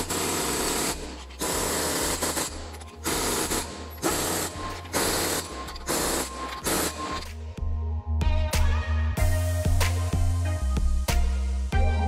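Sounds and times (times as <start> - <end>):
impact wrench hammering: 0.0 - 7.3.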